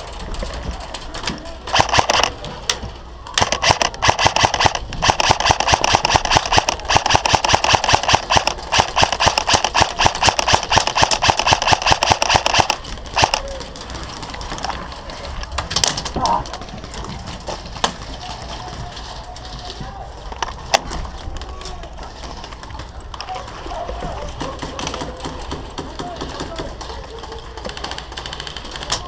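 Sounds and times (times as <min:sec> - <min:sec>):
airsoft gun firing full auto: 0:01.7 - 0:02.4, 0:03.4 - 0:13.4.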